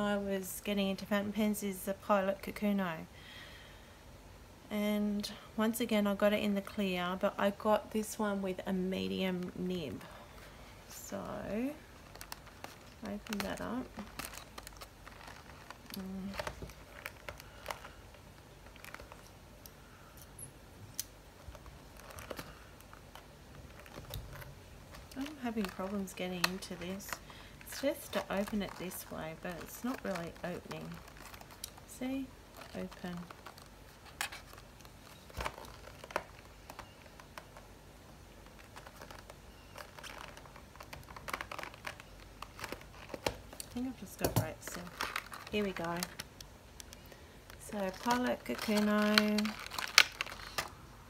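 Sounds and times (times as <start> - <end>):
cardboard box crinkling: 11.0 - 19.3, 21.4 - 50.8.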